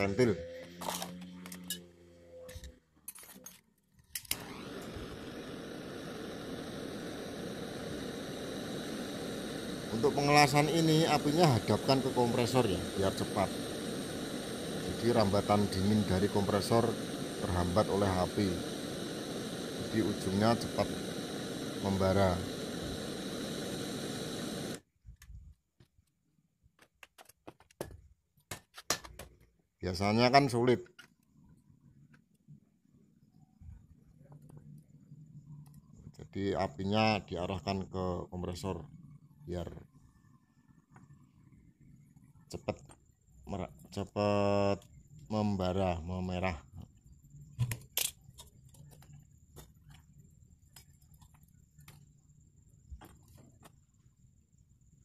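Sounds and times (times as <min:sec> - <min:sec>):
torch flame hissing: 0:04.2 - 0:24.9.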